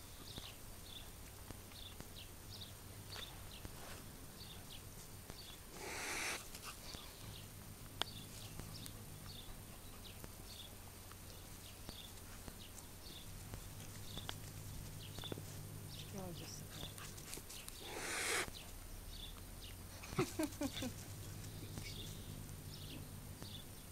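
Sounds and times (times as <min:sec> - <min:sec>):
faint high chirping: 0:05.4 - 0:07.5, 0:17.6 - 0:19.4
cat hissing: 0:05.7 - 0:06.8, 0:17.8 - 0:18.5.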